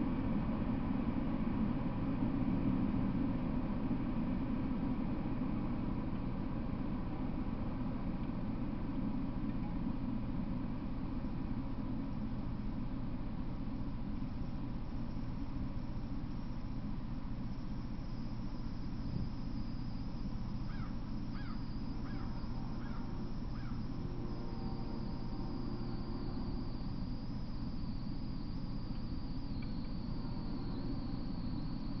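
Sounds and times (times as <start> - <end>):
outdoor background rumble: 0.0 - 32.0
thin high hiss: 14.3 - 32.0.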